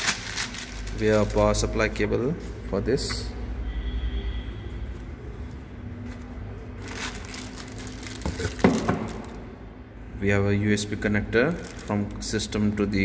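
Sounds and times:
plastic bag rustling: 0.0s - 2.0s, 6.1s - 9.5s, 11.4s - 12.9s.

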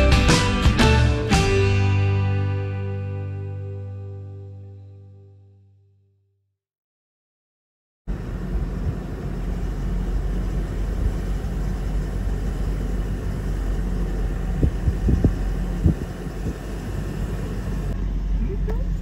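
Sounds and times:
car engine rumble from inside: 8.1s - 19.0s.

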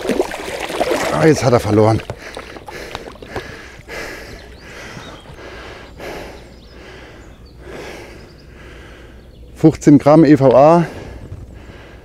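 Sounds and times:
man breathing hard: 2.1s - 9.3s, 10.8s - 12.0s.

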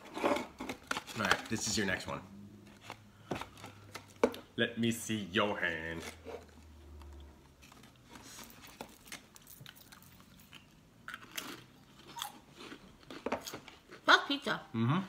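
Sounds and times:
potato crisp crunching: 8.8s - 14.0s.

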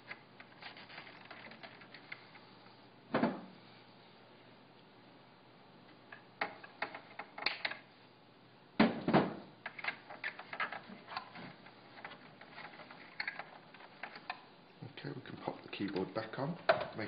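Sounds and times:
small clicks and rattles: 0.0s - 2.4s, 9.6s - 14.5s.

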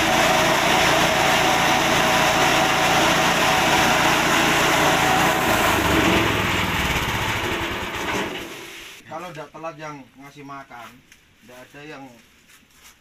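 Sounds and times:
chaff cutter engine running: 0.0s - 8.7s.

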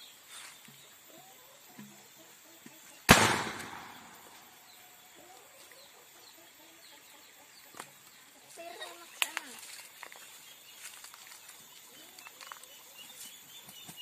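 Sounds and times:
loud cannon boom: 3.1s - 4.3s.

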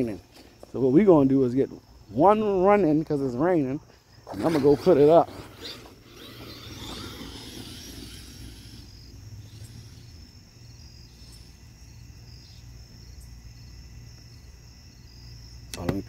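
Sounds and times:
crickets chirping: 0.0s - 16.0s
electric motor whining: 4.2s - 10.5s.

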